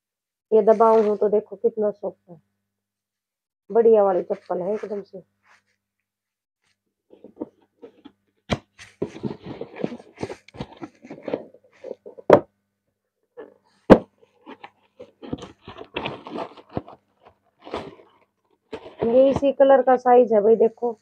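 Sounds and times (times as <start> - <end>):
cardboard box lid closing: 7.3 - 12.5, 13.9 - 17.0
tissue paper rustling: 8.8 - 12.2, 14.3 - 19.6
box thudding down: 13.9 - 14.6.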